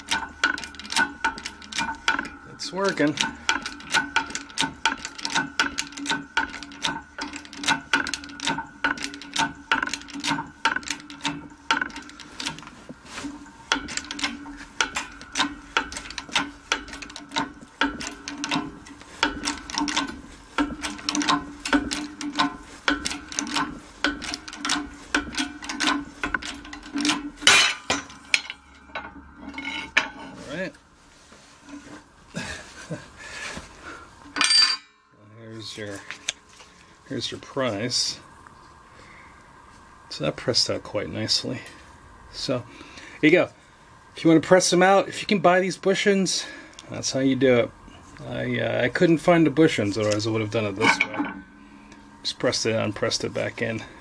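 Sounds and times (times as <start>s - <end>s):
hydraulic press hum: 0.0s - 32.4s, 46.4s - 54.0s
metallic clicks and clinks: 49.6s - 54.0s.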